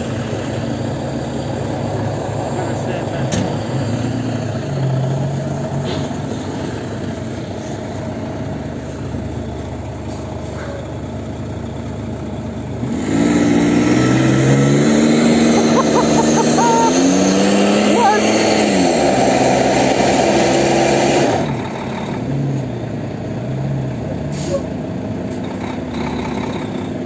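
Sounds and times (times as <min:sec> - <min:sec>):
engine working under load: 0:00.0 - 0:27.0
wheels spinning on snow: 0:14.2 - 0:17.1.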